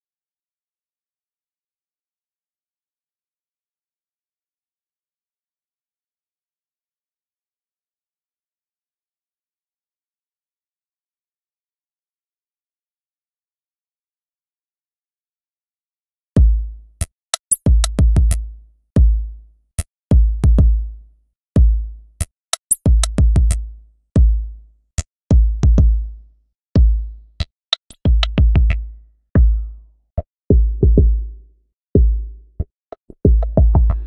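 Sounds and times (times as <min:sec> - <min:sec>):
deep kick drums: 0:16.4 - 0:16.7, 0:17.7 - 0:19.3, 0:20.1 - 0:20.9, 0:21.6 - 0:21.9, 0:22.9 - 0:23.6, 0:24.2 - 0:24.5, 0:25.3 - 0:26.1, 0:26.8 - 0:27.2, 0:28.1 - 0:29.8, 0:30.5 - 0:31.4, 0:32.0 - 0:32.4, 0:33.3 - 0:34.0.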